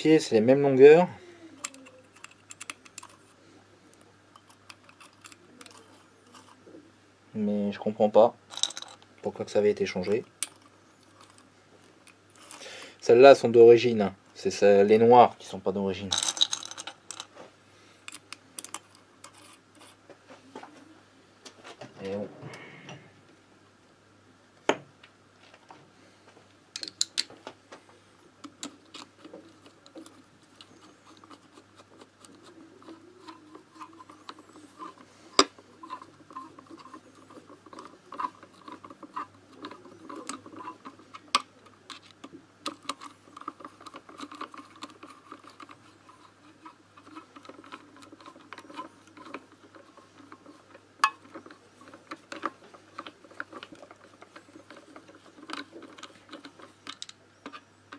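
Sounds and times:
metal parts clicking and scraping: 1.6 - 3.4, 4.3 - 6.6, 8.5 - 13.2, 15.9 - 17.4, 18.0 - 20.0, 26.8 - 27.3, 28.4 - 57.9.

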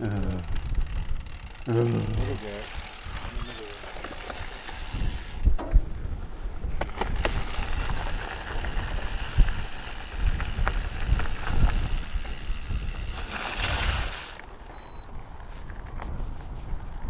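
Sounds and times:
wind buffeting microphone: 0.4 - 3.5, 4.2 - 17.0
bike knocks and rattles: 0.4 - 13.7
tyres on rough ground: 0.4 - 17.0.

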